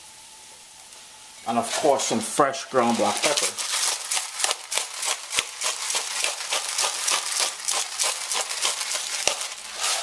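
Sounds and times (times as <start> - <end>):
pepper grinder crunching: 2.8 - 10.0.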